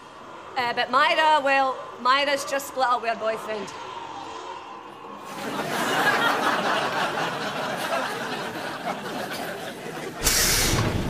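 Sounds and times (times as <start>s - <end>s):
audience laughter: 5.2s - 10.7s
bus air hiss: 10.2s - 11.0s.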